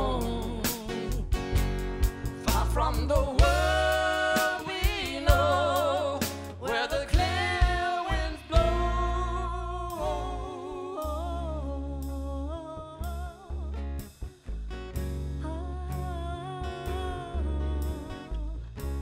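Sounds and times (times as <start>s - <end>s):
person singing with vibrato: 0.0s - 1.3s, 2.4s - 13.9s, 15.4s - 18.8s
drums: 0.0s - 11.3s
acoustic guitar: 0.0s - 19.0s
upright double bass: 0.0s - 19.0s.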